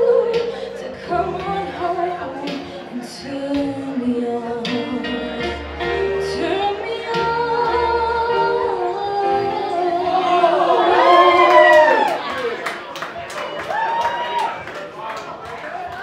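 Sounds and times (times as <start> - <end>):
woman singing karaoke: 0.0 - 12.0
backing track with bass: 0.0 - 12.1.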